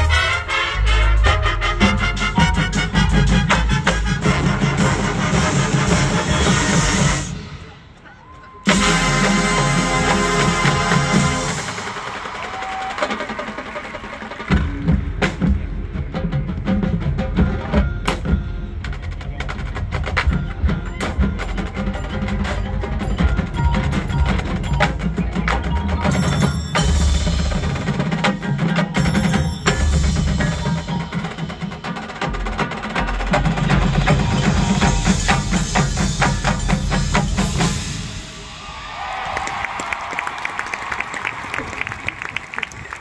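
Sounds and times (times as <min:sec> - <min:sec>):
marching band playing: 0:00.0 - 0:43.0
crowd applause: 0:08.1 - 0:14.9, 0:38.3 - 0:43.0
drum and mallet percussion hits: 0:08.7 - 0:38.7.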